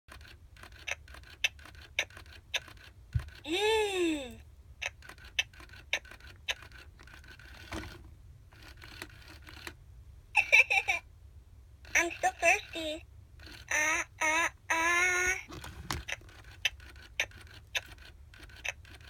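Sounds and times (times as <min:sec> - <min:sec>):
doll mechanism clicking: 0:00.1 - 0:03.5, 0:04.8 - 0:09.8, 0:13.4 - 0:14.0, 0:15.5 - 0:19.0.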